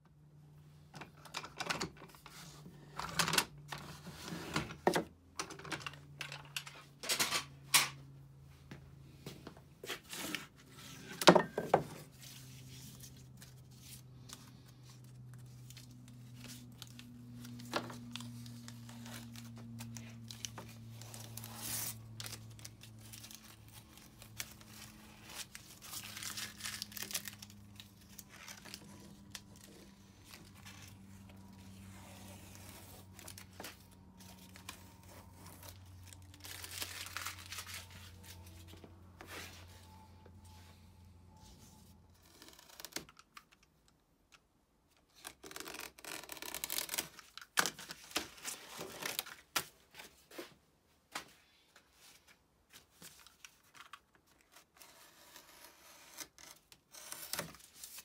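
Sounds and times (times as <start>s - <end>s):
masking tape being peeled off: 12.4s - 33.5s, 45.1s - 47.7s.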